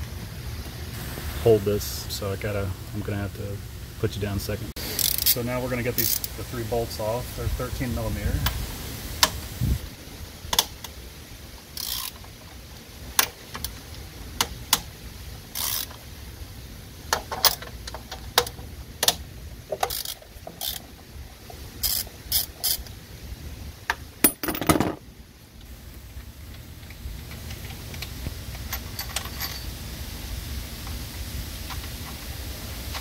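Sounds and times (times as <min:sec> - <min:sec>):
hand ratchet clicking: 0:05.0 - 0:05.4, 0:06.0 - 0:06.3, 0:11.7 - 0:12.3, 0:15.6 - 0:16.0, 0:18.4 - 0:20.9, 0:21.8 - 0:22.9.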